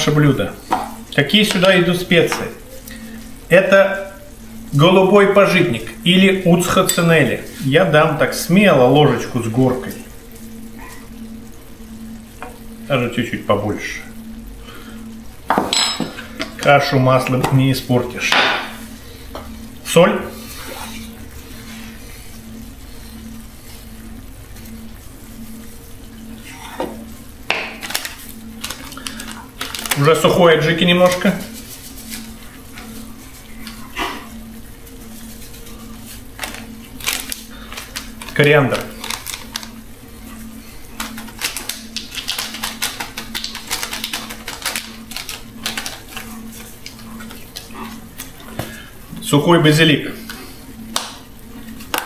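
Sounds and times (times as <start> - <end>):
low pulsing hum: 0.0 - 52.0
stew simmering with hiss: 0.1 - 15.4, 18.6 - 38.5.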